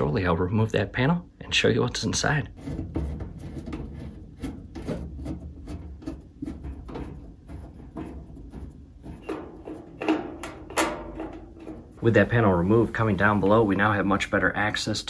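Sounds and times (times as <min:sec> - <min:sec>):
knocks on sheet metal: 0:02.7 - 0:11.9.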